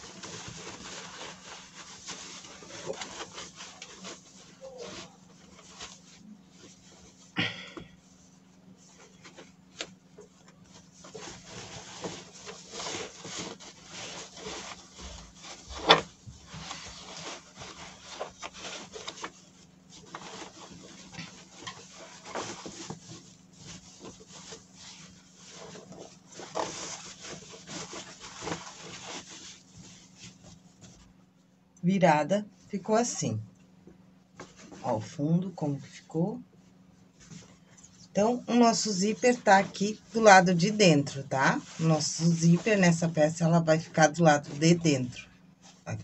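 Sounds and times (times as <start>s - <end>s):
fabric and foam rustling: 0.0s - 31.6s, 32.2s - 46.0s.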